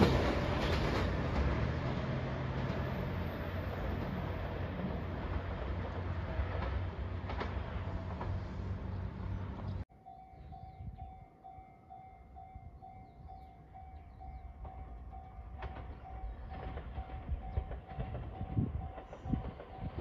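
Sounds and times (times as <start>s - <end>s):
level-crossing warning bell: 9.9s - 20.0s.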